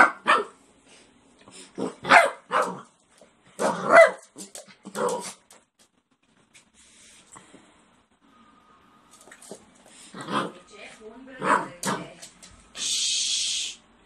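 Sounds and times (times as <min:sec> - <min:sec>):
small dog barking: 0:00.0 - 0:00.6, 0:01.9 - 0:02.9, 0:03.6 - 0:04.3.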